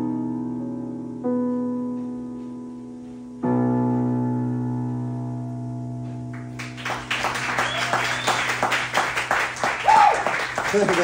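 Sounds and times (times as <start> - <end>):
piano chords: 0.0 - 11.0
audience clapping: 6.3 - 11.0.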